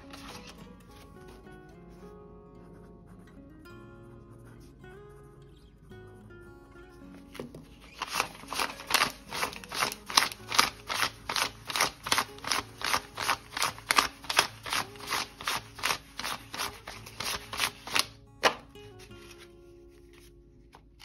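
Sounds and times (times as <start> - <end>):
paper bills snapping: 0.0 - 0.7, 7.3 - 19.5.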